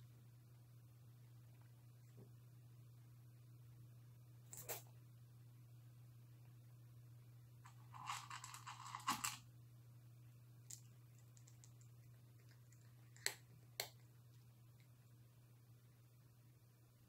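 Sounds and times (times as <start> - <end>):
faint steady hum: 0.0 - 17.0
cat crunching dry kibble: 7.7 - 9.4, 10.6 - 15.0.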